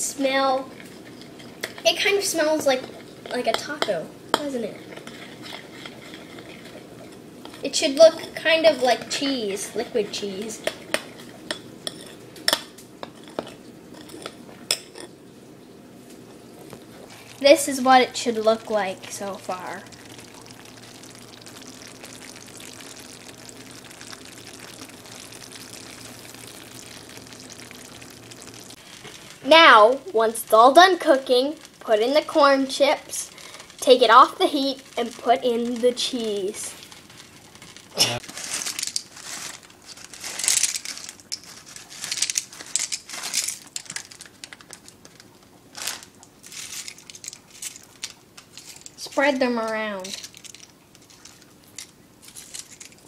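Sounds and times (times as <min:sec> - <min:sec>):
food sizzling in a frying pan: 0:00.1 - 0:15.0, 0:16.8 - 0:51.9
foil chip bag crinkling: 0:16.7 - 0:53.0
chips falling into a skillet: 0:19.1 - 0:29.6, 0:33.1 - 0:53.0.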